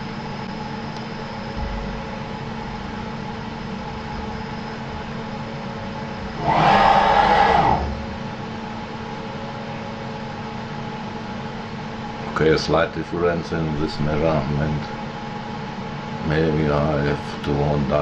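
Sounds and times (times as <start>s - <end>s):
axis drive whine: 0.0s - 12.8s
steady machine hum: 0.0s - 18.0s.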